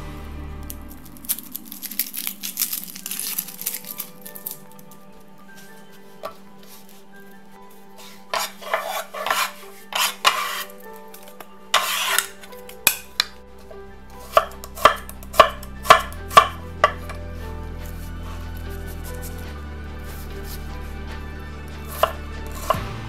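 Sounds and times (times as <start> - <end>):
onion skin rustling and scraping: 0.0 - 23.0
quiet background music: 0.0 - 23.0
knife chopping on wooden board: 14.2 - 17.2, 21.9 - 22.9.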